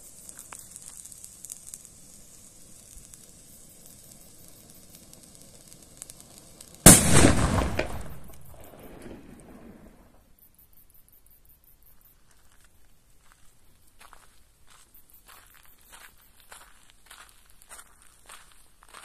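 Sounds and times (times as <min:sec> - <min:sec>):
fuse hissing: 0:00.0 - 0:07.0
firecracker bang echoing: 0:04.7 - 0:10.1.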